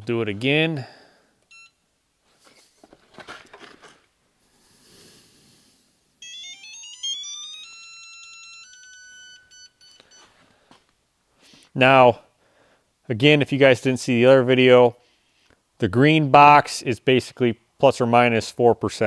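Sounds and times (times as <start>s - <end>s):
electronic tone from torque tester: 1.5s - 1.8s, 6.2s - 10.4s.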